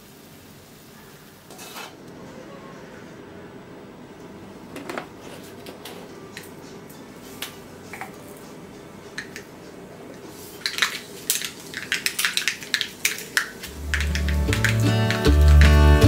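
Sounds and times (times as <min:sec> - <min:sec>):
mustard seeds popping in oil: 0:10.6 - 0:16.0.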